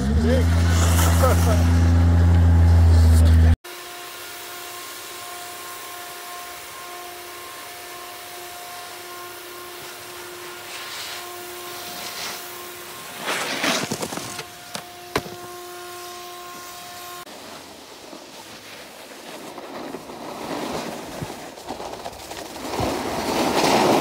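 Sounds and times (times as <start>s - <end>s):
snowboard scraping over snow: 0.0s - 3.5s, 9.1s - 15.6s, 16.5s - 24.0s
steady mechanical hum: 0.0s - 17.3s.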